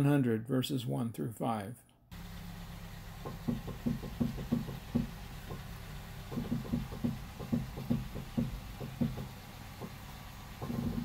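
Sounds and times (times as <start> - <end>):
car suspension knocking: 3.2 - 5.7, 6.3 - 10.0, 10.6 - 11.0.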